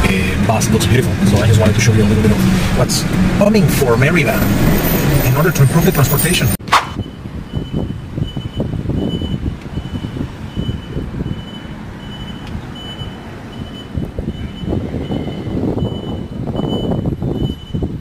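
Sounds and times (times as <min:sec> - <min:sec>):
electric bus rumble: 0:00.0 - 0:18.0
high warning beep: 0:04.0 - 0:17.9.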